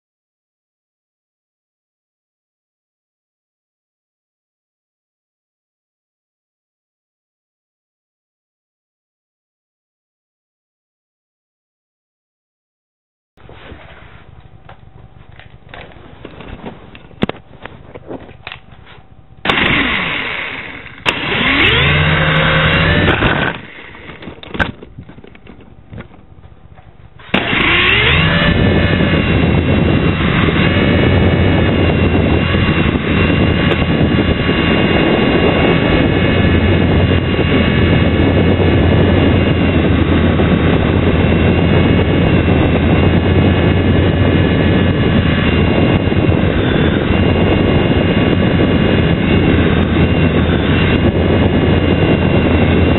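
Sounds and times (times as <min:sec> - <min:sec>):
toy helicopter rotors whirring: 0:19.5 - 0:24.4, 0:27.2 - 0:52.9.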